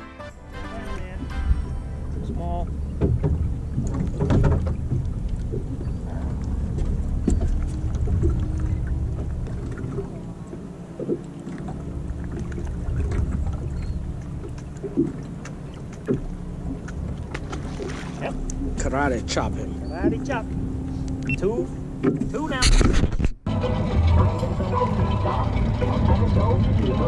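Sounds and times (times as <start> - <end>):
wind and water rushing: 0.0 - 23.0
knocks on boat: 3.0 - 5.1.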